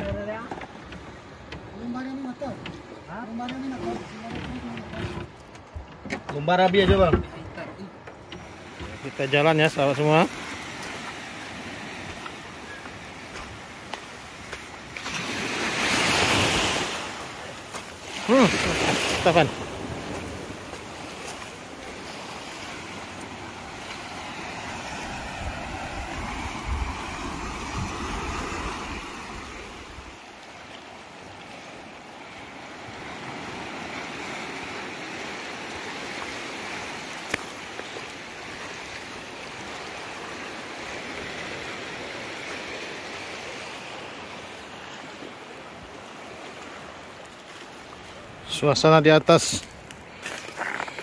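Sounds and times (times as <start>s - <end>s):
small waves washing in: 0.0s - 6.1s, 6.7s - 51.0s
wind buffeting microphone: 24.6s - 30.2s.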